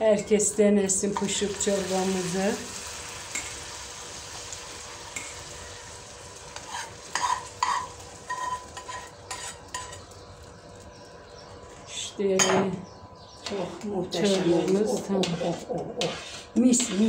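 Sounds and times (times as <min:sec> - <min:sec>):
soft sizzle: 0:00.0 - 0:12.8, 0:13.4 - 0:17.0
spoon scraping frying pan: 0:06.5 - 0:10.1, 0:13.4 - 0:17.0.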